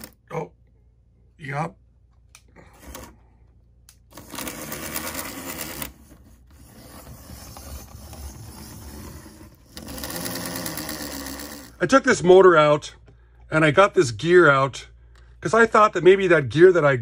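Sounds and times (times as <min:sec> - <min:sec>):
model train motor whirring: 0:06.6 - 0:11.8.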